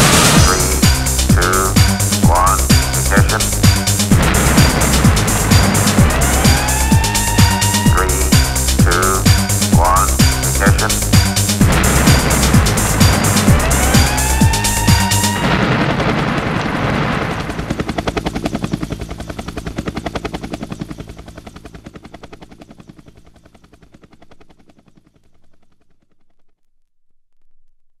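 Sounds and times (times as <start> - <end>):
fast chopping pulse: 0.0 - 15.4
low drone: 0.0 - 21.0.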